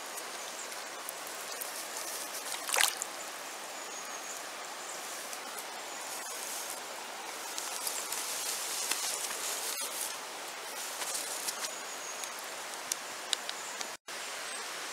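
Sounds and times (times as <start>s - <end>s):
river water rushing over stones: 0.0s - 3.8s.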